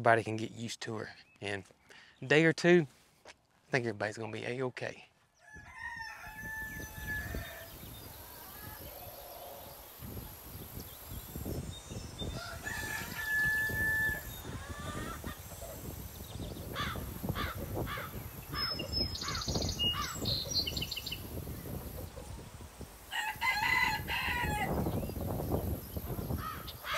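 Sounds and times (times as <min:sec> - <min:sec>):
rooster crowing: 0:05.4 - 0:10.0, 0:12.3 - 0:15.3, 0:23.1 - 0:24.9.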